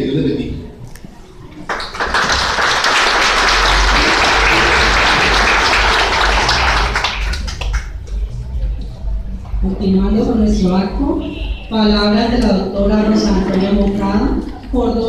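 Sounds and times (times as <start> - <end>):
audience applauding: 1.6 - 8.3.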